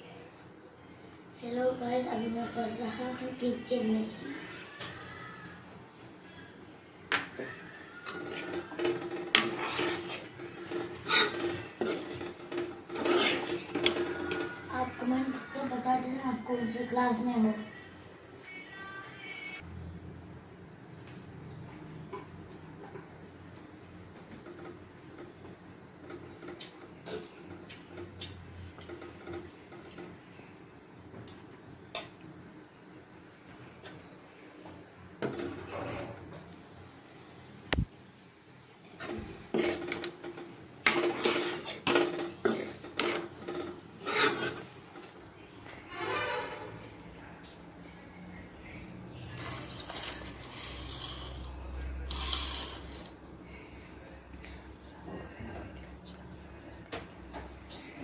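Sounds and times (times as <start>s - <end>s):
spoon scraping in a pan: 8.0s - 15.7s, 39.0s - 47.0s, 49.2s - 53.2s
rubbing scraping noise: 45.9s - 46.9s, 49.4s - 53.1s.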